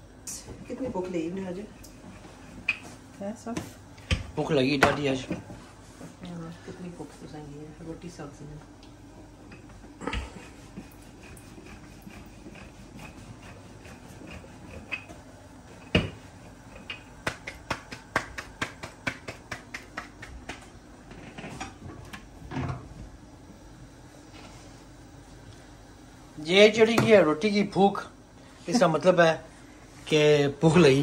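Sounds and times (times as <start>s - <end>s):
dough slapped by hand: 16.9s - 20.8s.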